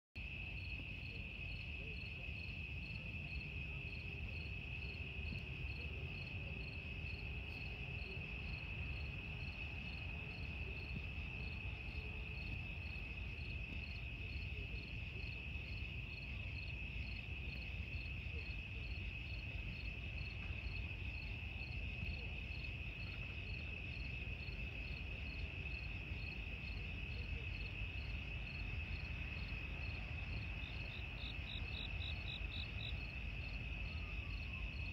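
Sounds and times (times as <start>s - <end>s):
crickets trilling: 23.4s - 34.9s.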